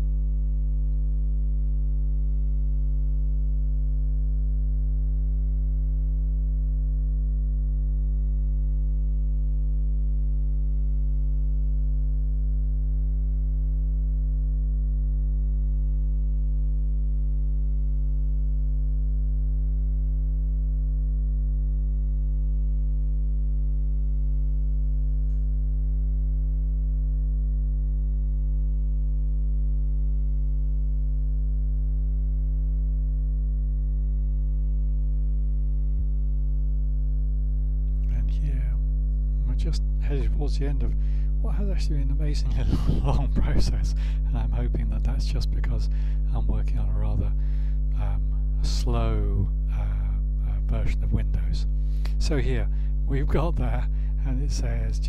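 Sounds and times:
low electrical mains hum: 0.0 - 55.0
faint click: 25.2 - 25.5.

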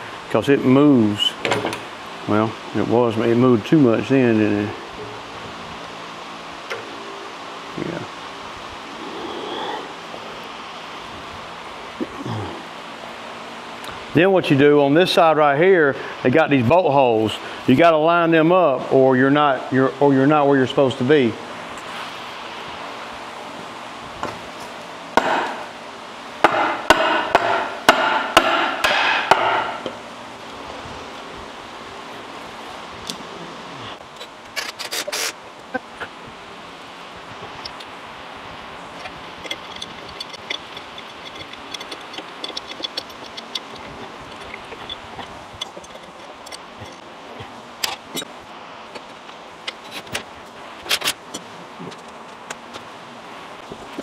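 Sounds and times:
hammer striking wooden board: 26.5 - 29.8
wrench clinking on metal fittings: 39.0 - 47.0.

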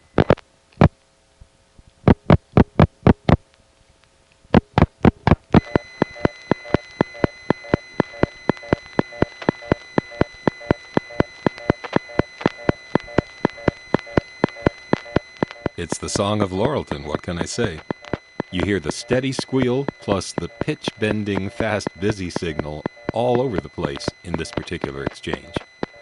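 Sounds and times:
faint steady tones: 0.0 - 26.0
rapid regular ticking: 4.5 - 26.0
sharp telephone line clicks: 4.6 - 26.0
high-pitched line squeal: 5.6 - 26.0.

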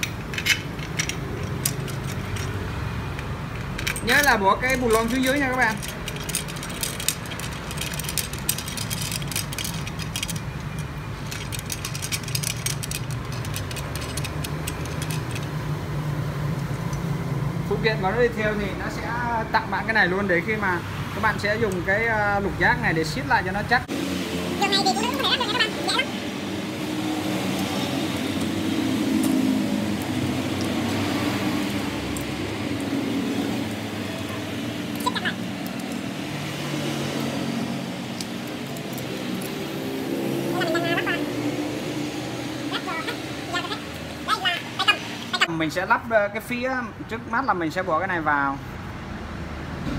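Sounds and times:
metal bolts clicking and clinking: 0.0 - 15.7.

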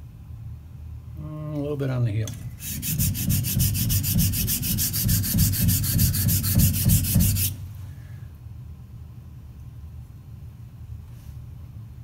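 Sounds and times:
razor blade scraping on sharpening plate: 2.6 - 7.6.

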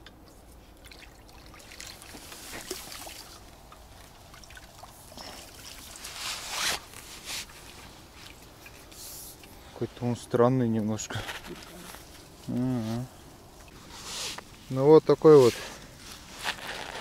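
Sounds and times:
water trickling: 0.3 - 9.8
rustling in wet grass: 0.5 - 10.2, 10.9 - 17.0.

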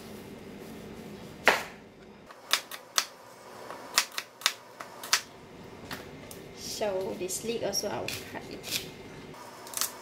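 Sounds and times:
knife striking cutting board: 1.4 - 1.8.

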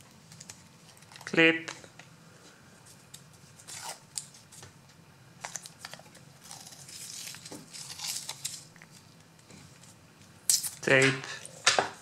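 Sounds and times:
masking tape peeling and ripping: 5.5 - 9.0.

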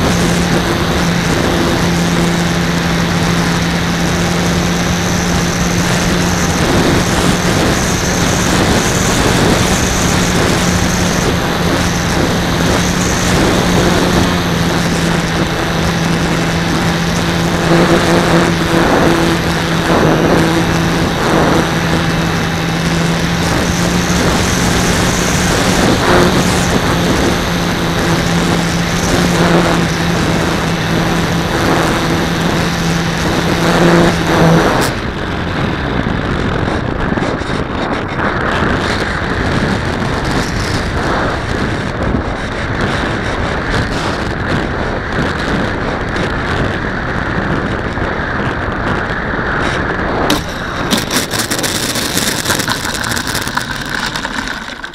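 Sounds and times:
wheels rolling: 0.0 - 41.9, 49.6 - 54.9
rushing air: 0.0 - 45.1, 48.2 - 54.9
electric motor and propeller: 0.0 - 54.9
wheels knocking on asphalt: 50.3 - 54.9.

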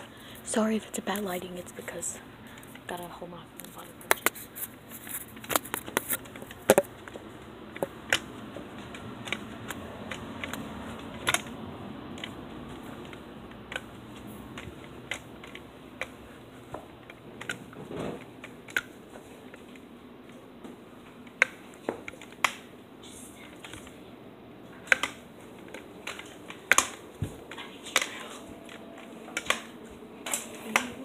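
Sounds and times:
crutches clicking and knocking: 3.6 - 20.4, 24.8 - 31.0.

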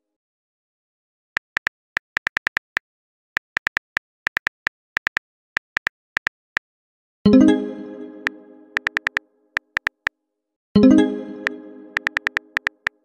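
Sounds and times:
keyboard typing clicks: 8.2 - 10.1, 11.4 - 13.0.

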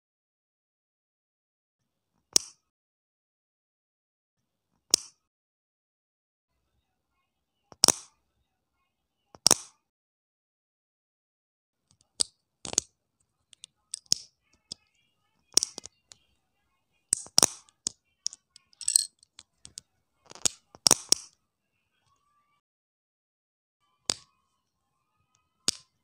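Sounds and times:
plastic pieces clicking and snapping: 11.9 - 12.9, 13.6 - 14.3, 15.5 - 16.2, 17.1 - 21.3, 25.6 - 26.0.

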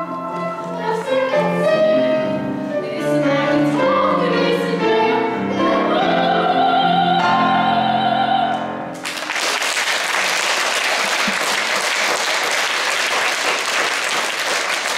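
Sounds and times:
soprano and young voices singing: 0.0 - 8.9
piano: 0.0 - 14.9
audience applauding: 9.0 - 14.9.

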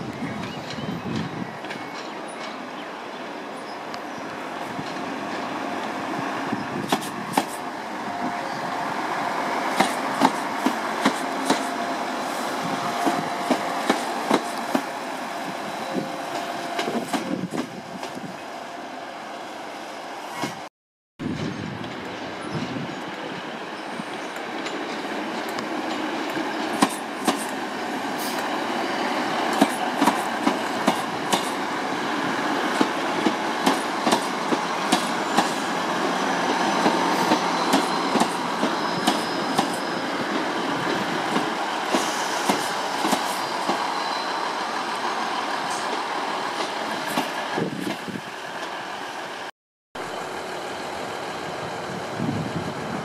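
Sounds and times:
train engine rumble: 0.0 - 53.0
train wheels clicking on track: 4.7 - 7.8, 9.1 - 18.4, 24.0 - 48.8.

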